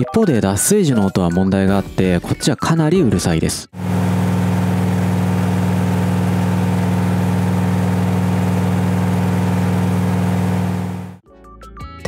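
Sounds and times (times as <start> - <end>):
washing machine spinning: 3.8 - 11.2.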